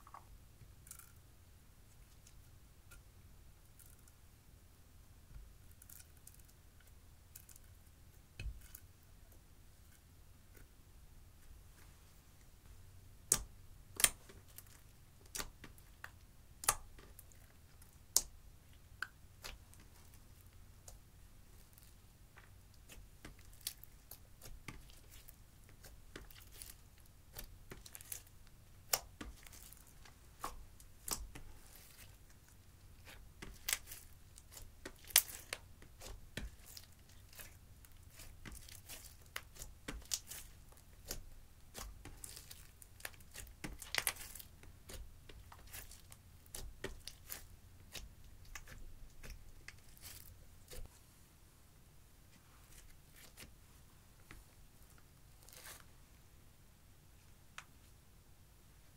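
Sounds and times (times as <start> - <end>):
slime sticky crackles and pops: 13.3 - 18.4, 22.8 - 50.9.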